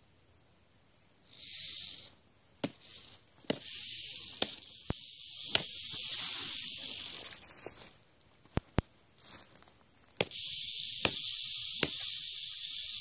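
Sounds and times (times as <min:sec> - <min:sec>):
rattlesnake rattling: 0:01.2 - 0:07.8, 0:10.3 - 0:13.0.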